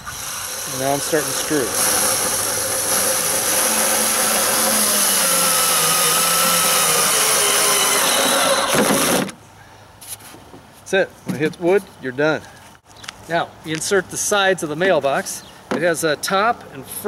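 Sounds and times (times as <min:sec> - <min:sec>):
cordless drill driving screw: 0:00.0 - 0:09.3.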